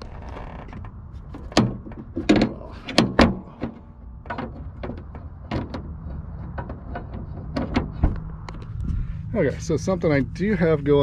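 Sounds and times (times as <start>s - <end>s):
steady low rumble: 0.0s - 11.0s
car hood clicks and knocks: 0.7s - 8.7s.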